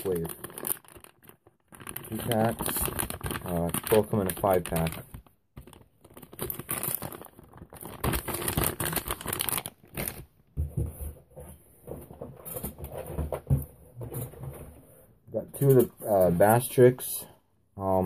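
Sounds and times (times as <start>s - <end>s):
plastic packages crinkling: 0.0s - 10.5s.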